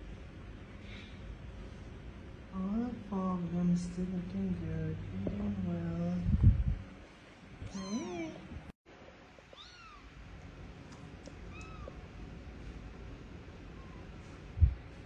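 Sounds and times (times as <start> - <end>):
kittens mewing: 7.7 - 8.5.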